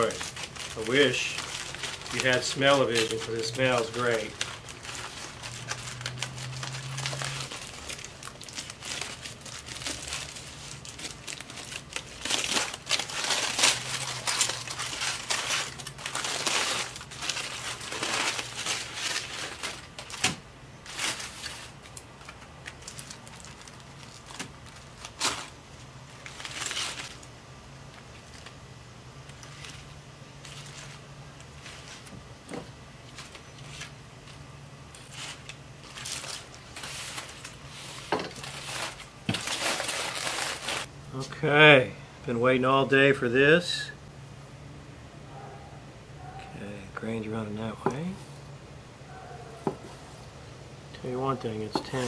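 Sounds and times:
aluminium foil crinkling: 0.0 - 40.9.

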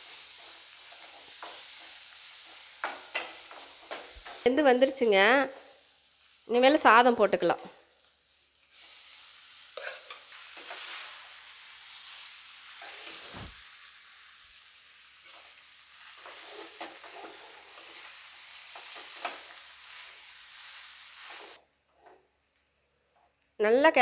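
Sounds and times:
food sizzling in oil: 0.0 - 21.6
steel spoon scraping pan: 9.8 - 11.2, 12.7 - 13.5, 16.2 - 19.6.

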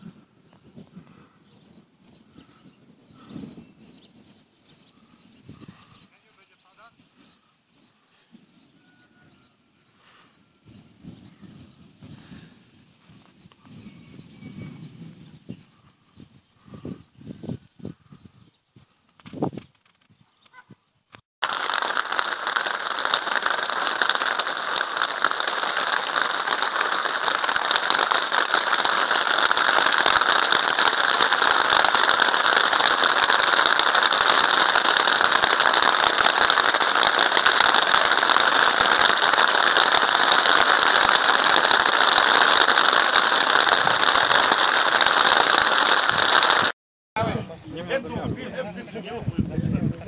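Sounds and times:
heavy rain falling: 21.4 - 46.7.

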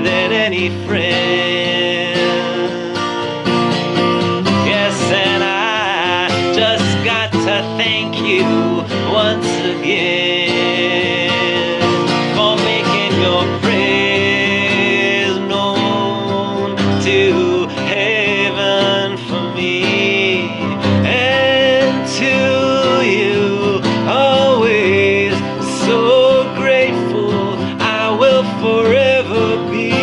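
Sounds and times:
man singing: 0.0 - 3.7, 4.3 - 30.0
strummed acoustic guitar: 0.0 - 30.0.

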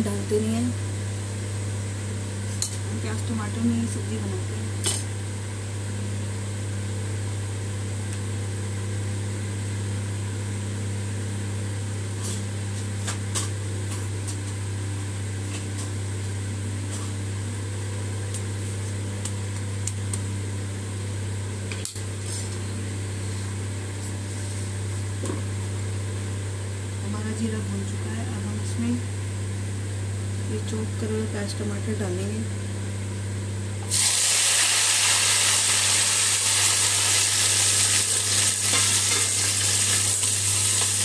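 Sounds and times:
loud steady low hum: 0.0 - 12.4, 13.0 - 41.0
seeds crackling in hot oil: 33.8 - 41.0.

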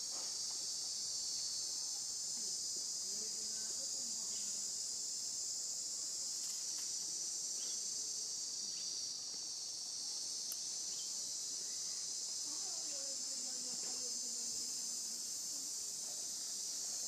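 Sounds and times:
insect chorus buzzing: 0.0 - 17.0.

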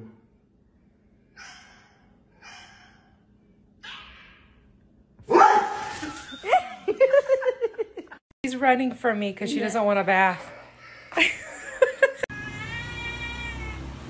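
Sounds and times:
bark-like cry: 1.4 - 3.2, 5.3 - 6.0.

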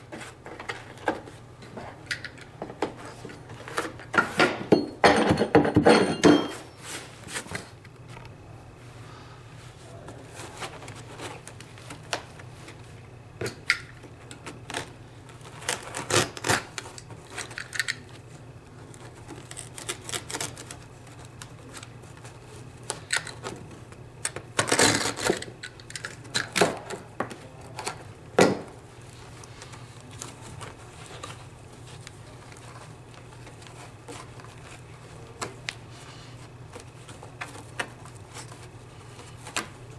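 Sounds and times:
carpet rustling and scraping: 0.0 - 2.0, 6.4 - 8.3, 9.5 - 13.0, 28.7 - 39.9.

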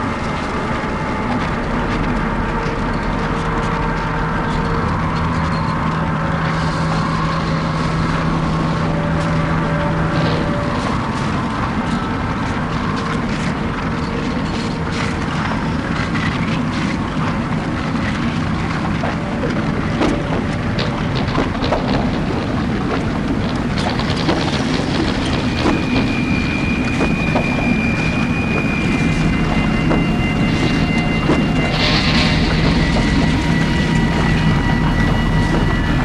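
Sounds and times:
low droning noise music: 0.0 - 36.0.

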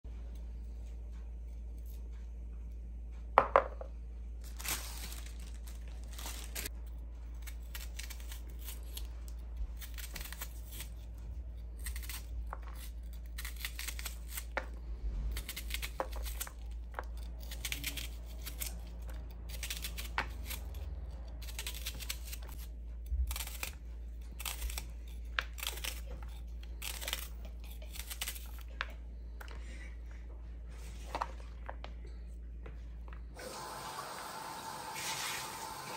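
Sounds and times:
low steady hum: 0.0 - 35.9
knife slicing onion: 6.2 - 28.7.

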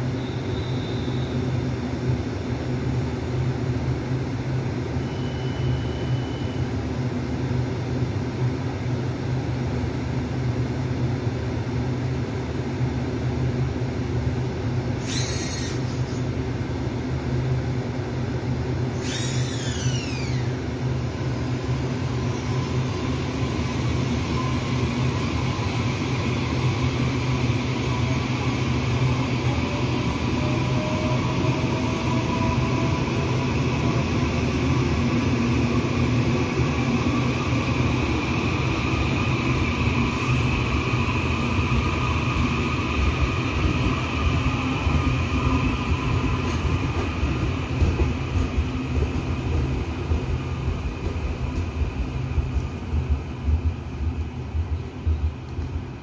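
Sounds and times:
train wheels rumbling on rail: 0.0 - 56.0
electric train whine rising: 15.0 - 16.3, 18.9 - 53.6.

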